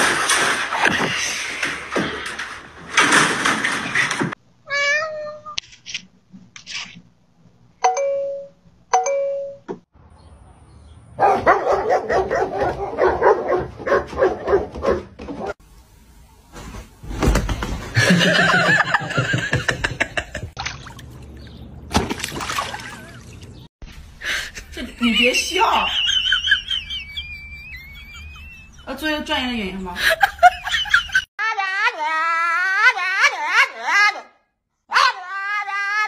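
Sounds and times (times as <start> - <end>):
doorbell chime: 7.8 - 9.7
dog barking rapidly: 11.2 - 15.6.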